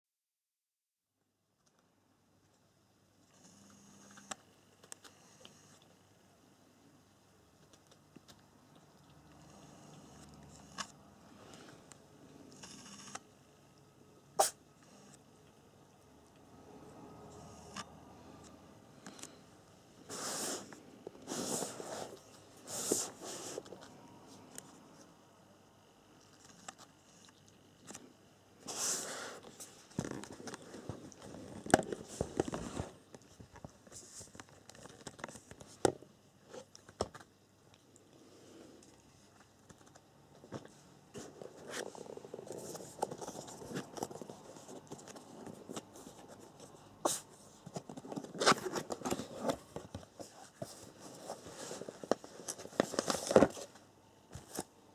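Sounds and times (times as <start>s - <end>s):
cardboard rustling and scraping: 20.0s - 23.8s, 28.6s - 36.7s, 40.4s - 53.8s.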